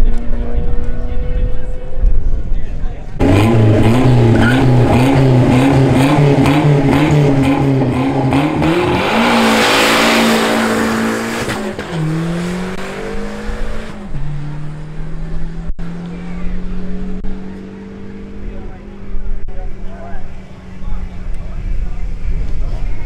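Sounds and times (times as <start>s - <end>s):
tires hissing: 3.2s - 15.0s
racing car engine revving: 3.2s - 22.3s.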